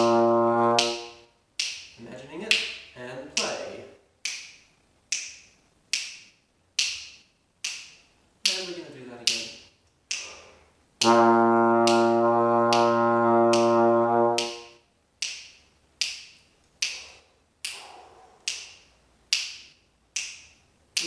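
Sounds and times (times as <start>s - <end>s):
finger snaps: 1.6s - 2.8s, 4.2s - 8.6s, 9.3s - 10.4s, 15.2s - 21.0s
trombone holding a low note: 11.0s - 14.4s.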